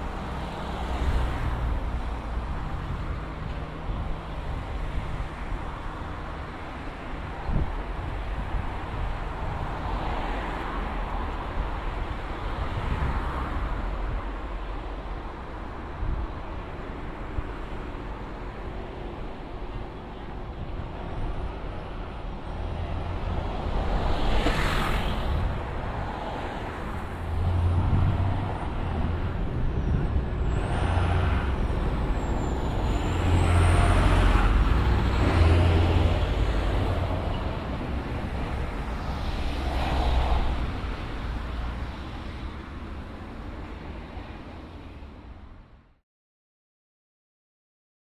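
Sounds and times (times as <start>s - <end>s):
cars passing: 0.0s - 45.7s.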